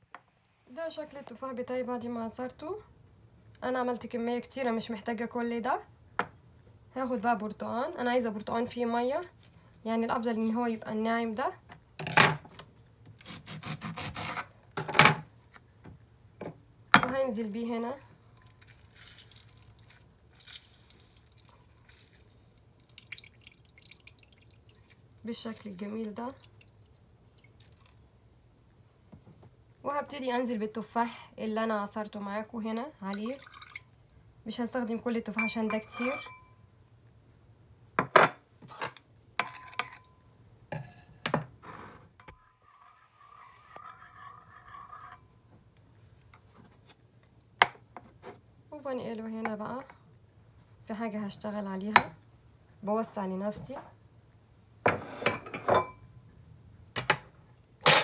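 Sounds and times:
juice dripping into bowl: 18.3 - 25.2, 26.2 - 28.1, 33.1 - 34.2
spoon scraping around bowl: 35.4 - 36.4, 42.2 - 45.4
spoon clinking on bowl: 35.4 - 36.6, 39.4 - 40.2.

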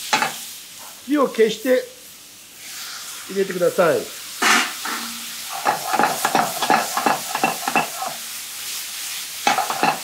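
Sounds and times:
meat and vegetables sizzling in pan: 0.0 - 10.0
pan clattering while tossed: 5.6 - 8.2, 9.5 - 10.0.

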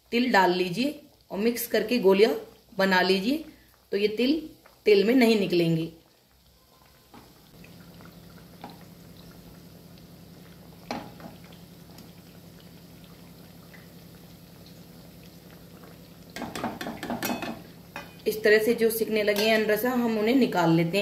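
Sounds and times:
soft bubbling of deep-frying oil: 0.0 - 21.0
metal spoon knocking on pan: 16.4 - 18.2.

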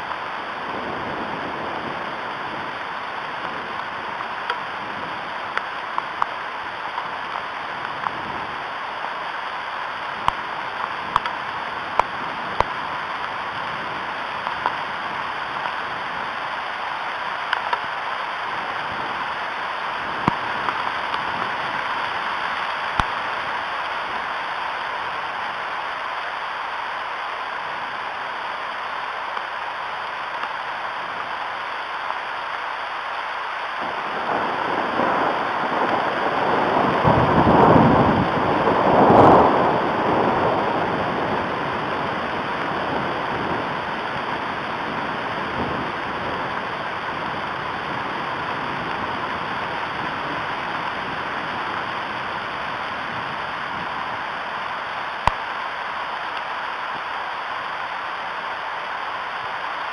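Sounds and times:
rain hissing: 0.0 - 59.9
thunder rumbling: 33.8 - 55.4.

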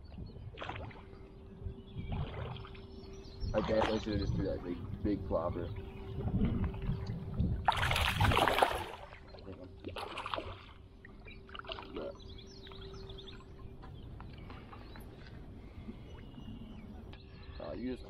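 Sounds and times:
water sloshing: 0.4 - 17.0
fish splashing: 7.7 - 9.1.

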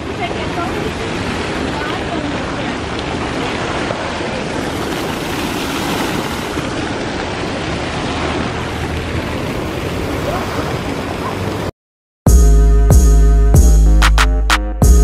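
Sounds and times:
water rushing from fountain: 0.0 - 11.7.

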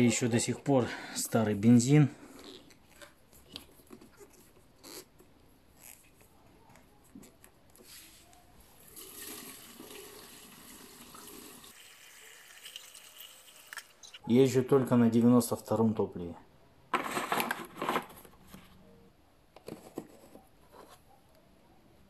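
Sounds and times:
fuel pouring through funnel: 8.8 - 13.6.

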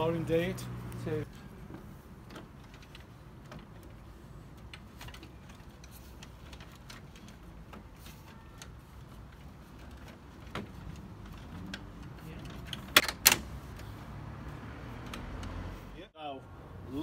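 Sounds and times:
plastic parts clicking into place: 2.2 - 13.9.

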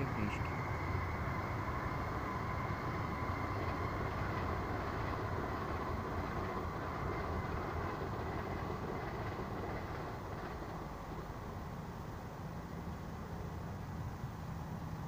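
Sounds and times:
electric train passing: 0.0 - 15.0.

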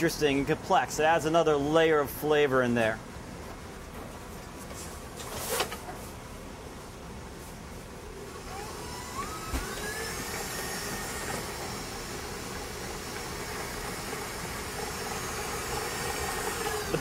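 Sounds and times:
stand mixer motor whine: 8.2 - 17.0.

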